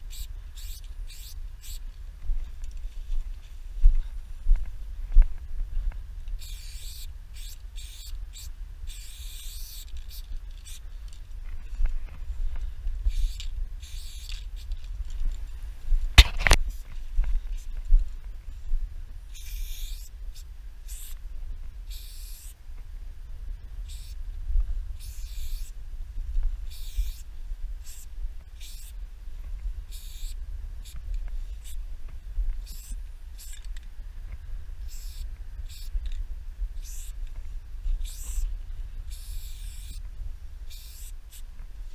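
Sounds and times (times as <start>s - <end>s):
steady low rumble: 0.0s - 41.9s
spray paint can hissing: 0.1s - 1.8s, 6.4s - 10.8s, 13.0s - 14.8s, 19.3s - 21.2s, 21.8s - 22.6s, 23.8s - 24.2s, 25.0s - 25.8s, 26.6s - 29.0s, 29.9s - 31.8s, 32.6s - 33.7s, 34.8s - 36.2s, 36.8s - 37.2s, 37.9s - 38.5s, 39.1s - 40.0s, 40.6s - 41.9s.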